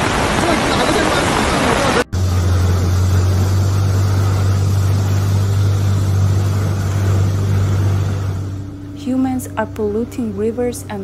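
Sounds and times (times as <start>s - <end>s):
floodwater rushing: 0.0s - 8.9s
engine droning: 0.0s - 11.0s.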